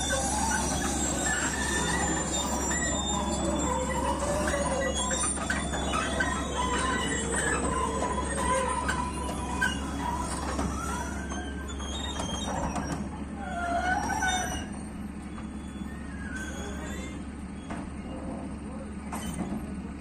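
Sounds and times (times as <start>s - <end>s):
track links clanking: 0.0s - 13.2s
wavering squeal: 0.0s - 19.6s
excavator engine running: 0.0s - 20.0s.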